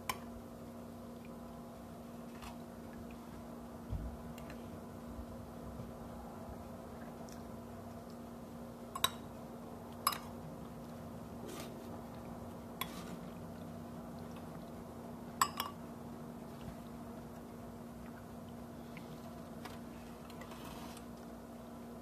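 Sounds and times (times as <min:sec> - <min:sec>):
steady low hum: 0:00.0 - 0:22.0
metal spoon clinking ceramic bowl: 0:15.4 - 0:15.8.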